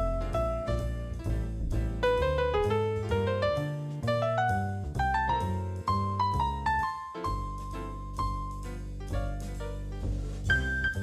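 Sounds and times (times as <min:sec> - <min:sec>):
piano-led background music: 0:00.0 - 0:11.0.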